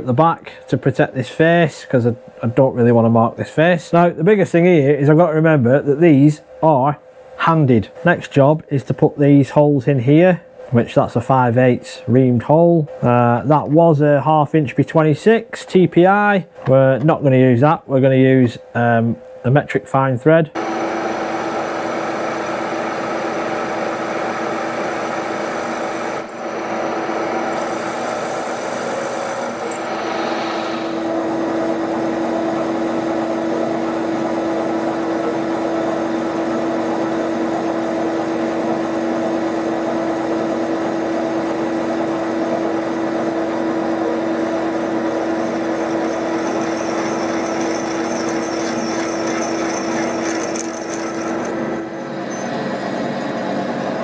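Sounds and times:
high drilling whine: 20.6 - 31.4, 44.7 - 53.7
milling machine spindle hum: 20.6 - 54.0.

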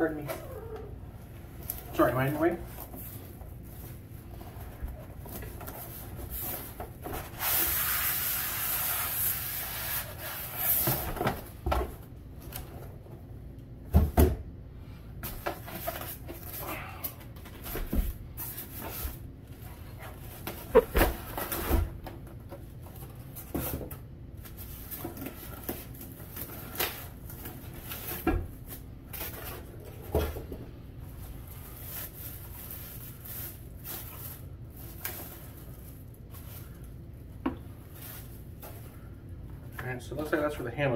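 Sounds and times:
plastic bags rustling: 31.0 - 39.3.

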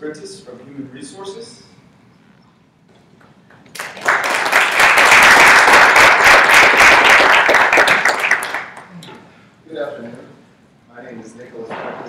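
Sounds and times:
audience applauding: 3.7 - 8.9.

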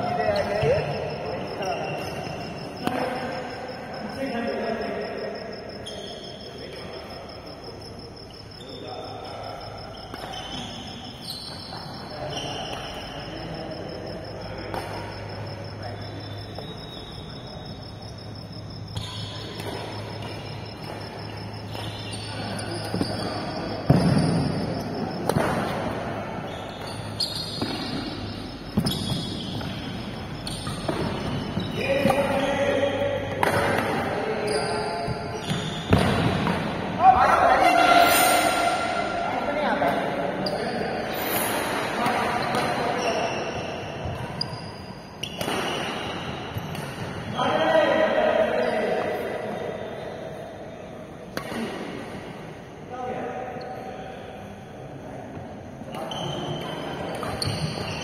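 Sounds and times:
shoes squeaking on court floor: 0.0 - 36.9, 37.6 - 47.6, 55.4 - 58.0
players' voices: 0.0 - 44.2
rackets striking shuttlecock: 33.3 - 34.1, 45.3 - 47.2.

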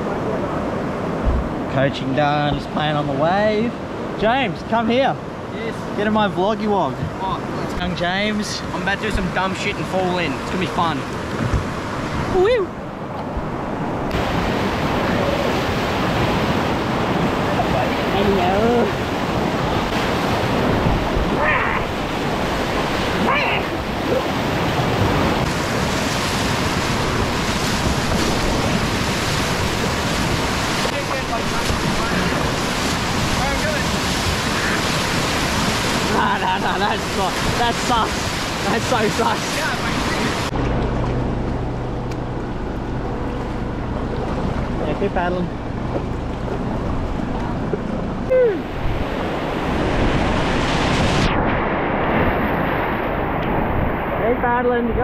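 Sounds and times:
wind rumble on microphone: 0.0 - 4.2, 6.8 - 55.0
whitewater rushing and splashing: 0.0 - 55.0
person shouting: 21.4 - 21.9, 23.2 - 24.2, 48.3 - 48.7.

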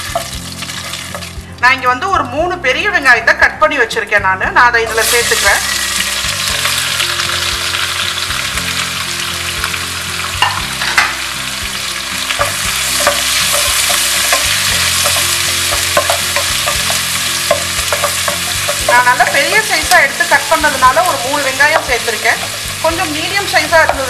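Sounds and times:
onions sizzling in oil: 0.0 - 1.7, 4.9 - 24.0
spatula knocking and scraping pan: 12.4 - 22.7.

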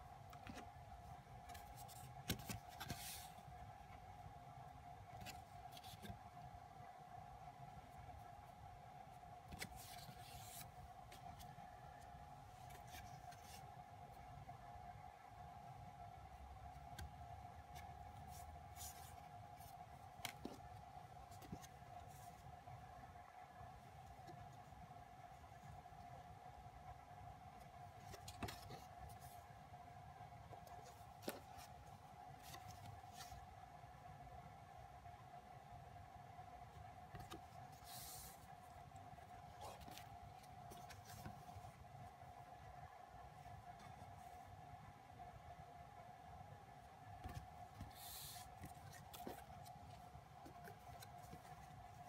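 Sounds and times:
faint hum: 0.0 - 52.0
paper cards rustling: 1.4 - 3.4, 9.5 - 13.6, 28.0 - 29.4, 39.2 - 41.8, 47.2 - 52.0.

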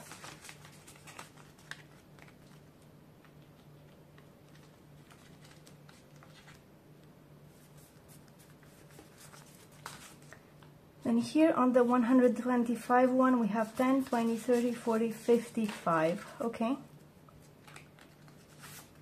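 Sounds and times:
banknotes being shuffled: 7.6 - 10.5, 12.8 - 16.4.

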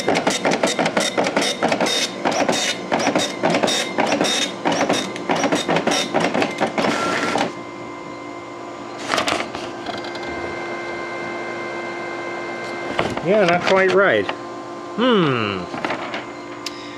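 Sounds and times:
dot matrix printer printing: 0.0 - 7.6
steady printer hum: 0.0 - 16.9.

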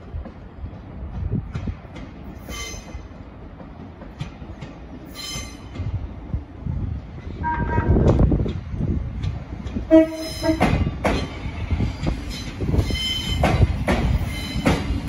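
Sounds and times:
train wheels rumbling on track: 0.0 - 15.0
train horn: 7.4 - 8.1, 9.9 - 10.8.

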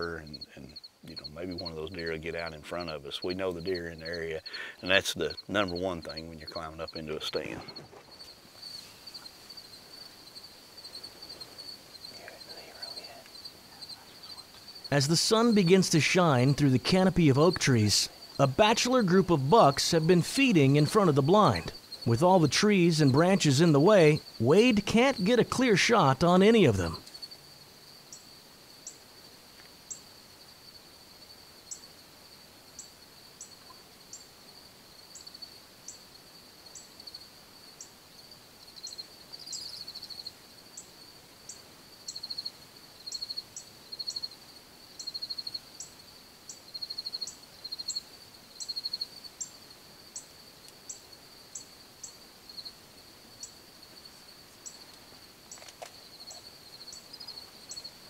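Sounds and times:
insect high-pitched trill: 0.0 - 58.0
short sharp insect ticks: 53.4 - 58.0.

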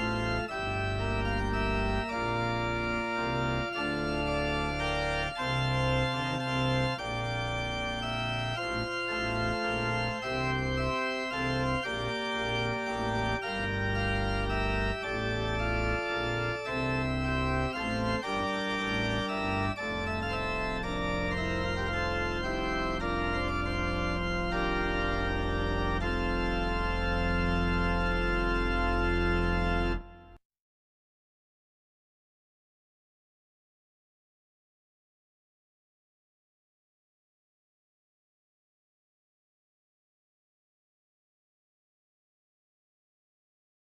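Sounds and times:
pipe organ playing chords: 0.0 - 30.4.

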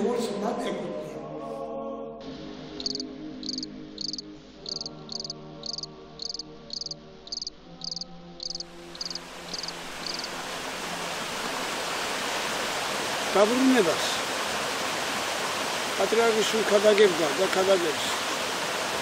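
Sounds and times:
cricket chirping: 2.8 - 10.3
rushing water: 8.6 - 19.0.

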